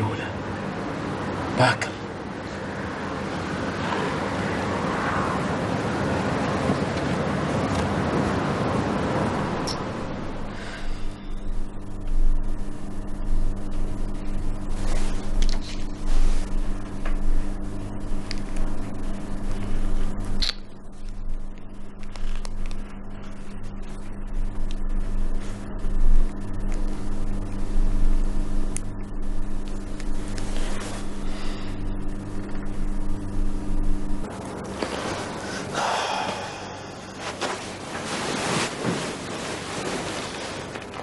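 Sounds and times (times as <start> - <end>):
low throbbing hum: 7.2 - 38.4.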